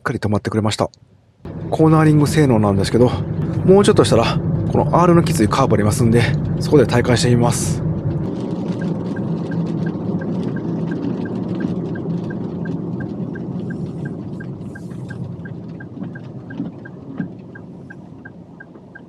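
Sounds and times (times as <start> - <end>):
van driving on wet road: 1.5 - 19.0
turn signal clicking: 7.8 - 19.0.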